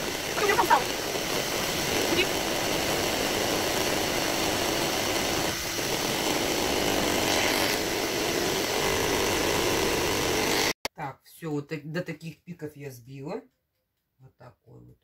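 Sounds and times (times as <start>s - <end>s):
electric hand mixer whipping batter: 0.0s - 10.8s.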